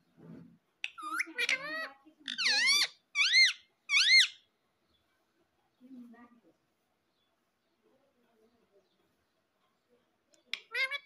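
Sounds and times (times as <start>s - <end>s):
parrot chattering and calling: 0.8s - 4.5s, 10.5s - 11.0s.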